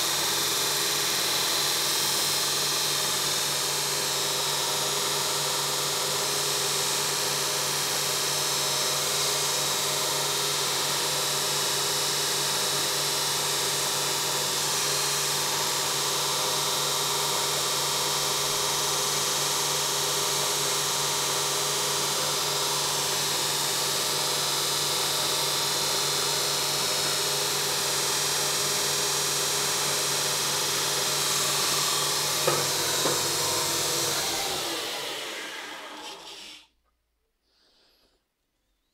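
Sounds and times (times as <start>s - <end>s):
belt grinder grinding steel: 30.5s - 36.7s
sharp knocks: 32.4s - 34.0s.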